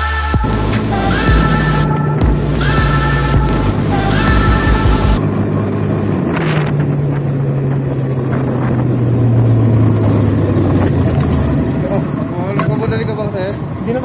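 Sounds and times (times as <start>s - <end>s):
background music: 0.0s - 5.2s
scooter engine running: 0.0s - 14.0s.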